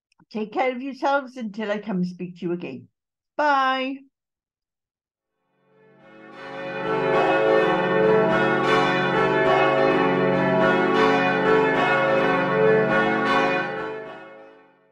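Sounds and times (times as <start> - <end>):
church bells pealing: 6.0 - 14.8.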